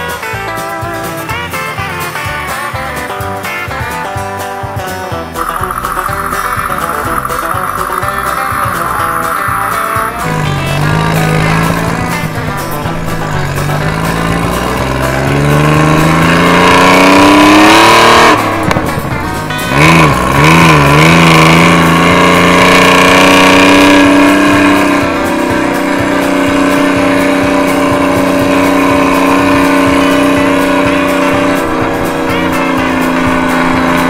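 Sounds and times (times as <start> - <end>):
truck diesel engine: 0.0 - 34.0.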